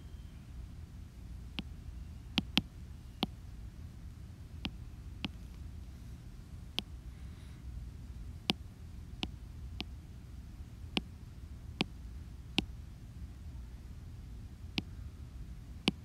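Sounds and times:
low steady hum: 0.0 - 16.0
taps on touchscreen: 2.4 - 3.3.

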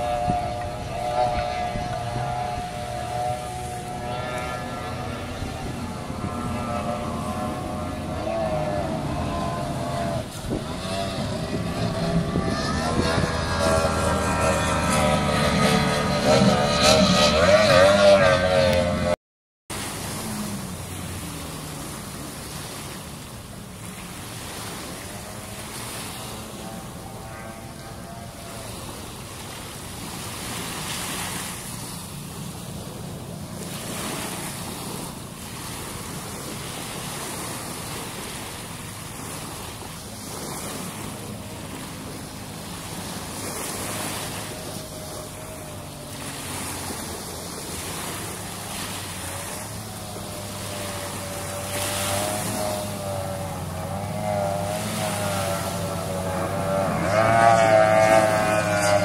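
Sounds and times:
distant powerboat engines droning: 0.0 - 59.0
race boat engine approaching: 0.0 - 59.0
small sea waves washing in: 19.7 - 59.0.

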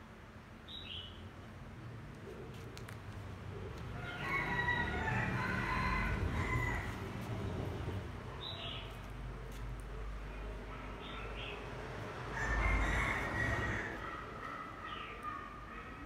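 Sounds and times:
rooster crowing: 4.0 - 7.2, 12.3 - 14.2.

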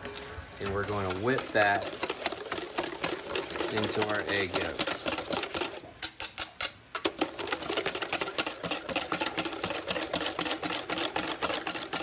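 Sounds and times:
whisk beating in metal bowl: 0.0 - 12.0.

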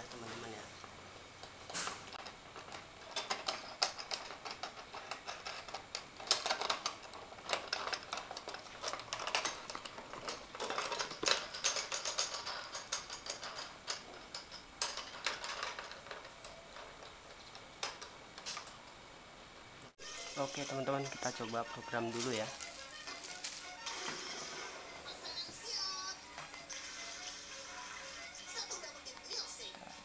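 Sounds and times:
antenna and cable clicking and rustling: 1.4 - 19.0.

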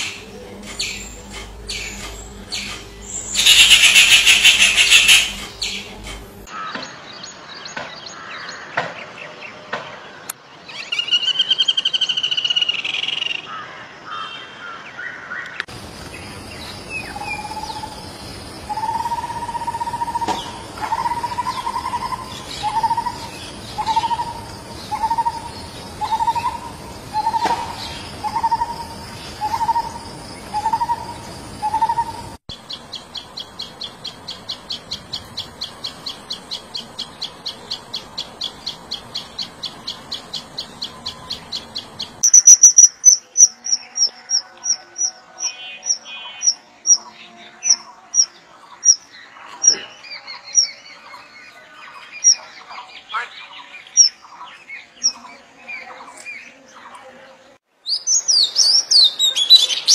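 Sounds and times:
high insect hum: 0.0 - 6.5, 15.7 - 49.1.

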